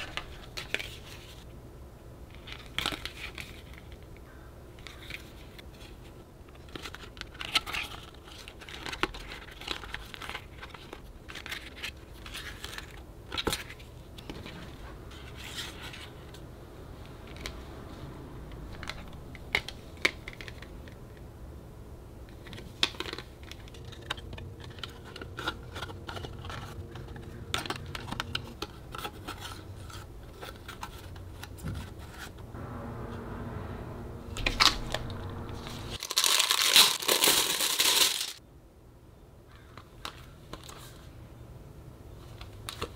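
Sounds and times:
plastic sleeve crinkling: 36.0s - 38.4s.

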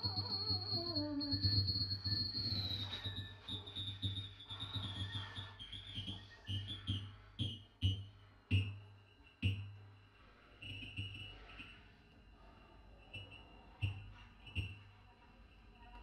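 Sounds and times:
high wavering tone: 0.0s - 7.6s.

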